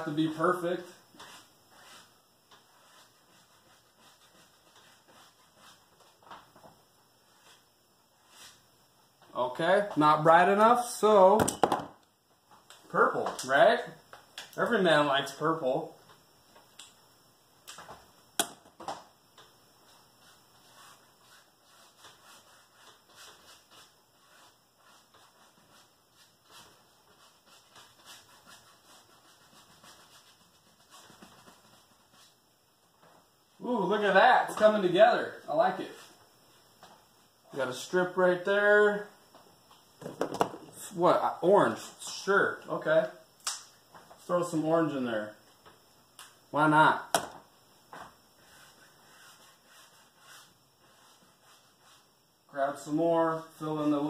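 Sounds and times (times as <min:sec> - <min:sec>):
brush strokes on canvas: 0:00.0 - 0:08.7, 0:19.8 - 0:32.4, 0:33.1 - 0:38.2, 0:48.0 - 0:54.0.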